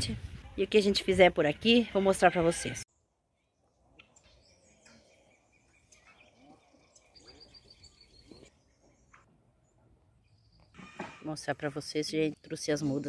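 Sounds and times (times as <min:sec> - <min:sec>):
outdoor background noise: 0:00.0 - 0:13.0
faint birdsong: 0:02.9 - 0:13.0.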